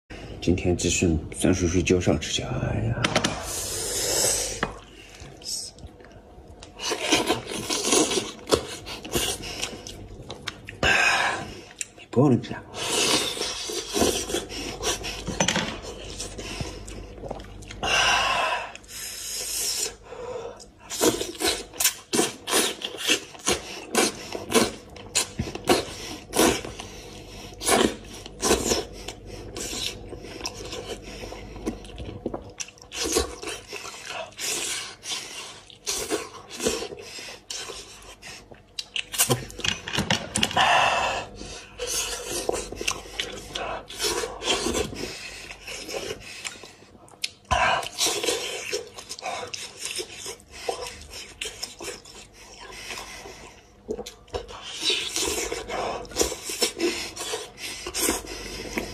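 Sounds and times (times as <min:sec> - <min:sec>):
man eating with lip smacks: 0:31.6 - 0:39.6, 0:41.8 - 0:58.9.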